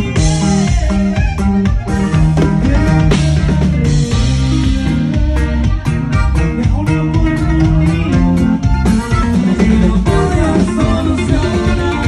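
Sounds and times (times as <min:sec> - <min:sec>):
electric bass guitar: 0:00.0 - 0:12.0
steady drum beat: 0:00.0 - 0:12.0.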